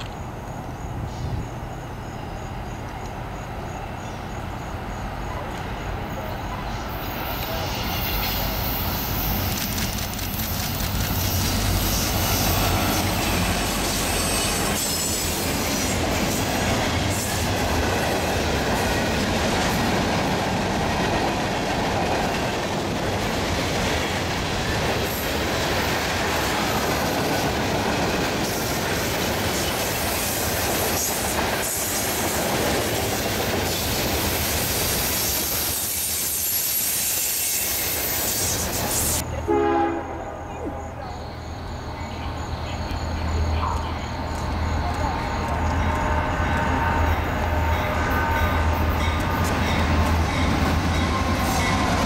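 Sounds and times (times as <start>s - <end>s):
diesel locomotive engines droning: 0.0s - 52.0s
train wheels rumbling on rail: 0.0s - 52.0s
high wheel squeal: 6.8s - 10.0s, 11.0s - 17.4s, 33.7s - 39.2s
wheels clicking over rail joints: 8.2s - 14.8s.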